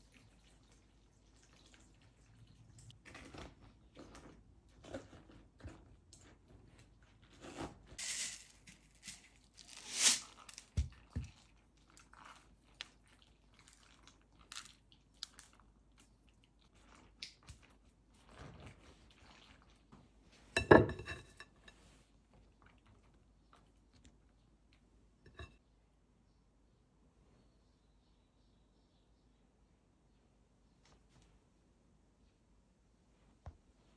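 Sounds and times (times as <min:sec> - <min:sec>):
wet vegetables crunching: 0:01.4 - 0:07.9, 0:08.7 - 0:19.9
spatula scraping: 0:04.8 - 0:10.8, 0:25.3 - 0:25.6.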